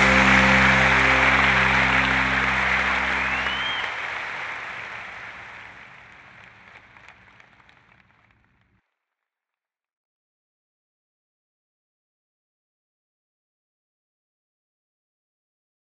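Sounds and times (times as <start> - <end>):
music with held low notes: 0.0 - 3.9
audience applause: 0.0 - 8.5.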